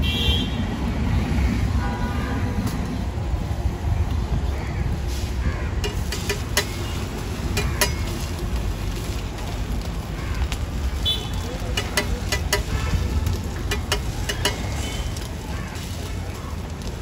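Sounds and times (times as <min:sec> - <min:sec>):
low traffic rumble: 0:00.0 - 0:17.0
metal spatula clicking on griddle: 0:05.8 - 0:08.4, 0:11.7 - 0:15.3.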